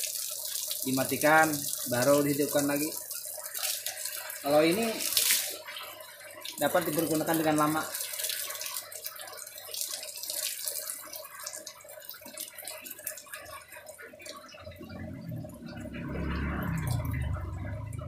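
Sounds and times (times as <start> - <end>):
pump motor humming: 0.0 - 18.0
water jet splashing on wooden boards: 0.0 - 18.0
low rumble: 14.7 - 18.0.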